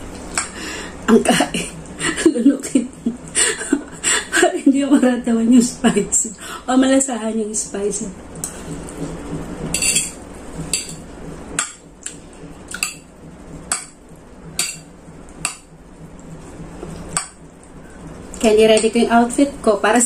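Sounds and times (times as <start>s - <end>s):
fork clinking on ceramic plate: 9.8s - 10.2s.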